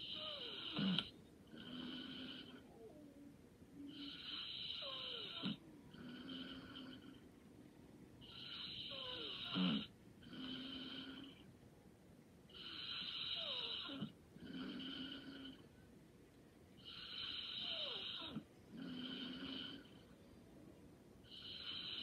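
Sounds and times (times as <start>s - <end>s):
light snoring: 0.0s - 3.0s, 3.8s - 7.3s, 8.2s - 11.5s, 12.5s - 15.7s, 16.8s - 20.2s, 21.2s - 22.0s.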